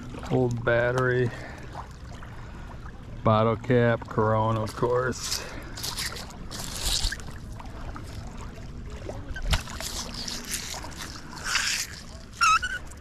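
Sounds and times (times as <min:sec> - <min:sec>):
wind: 0:00.0 - 0:13.0
rustling of wet seaweed: 0:04.4 - 0:13.0
water washing: 0:04.6 - 0:13.0.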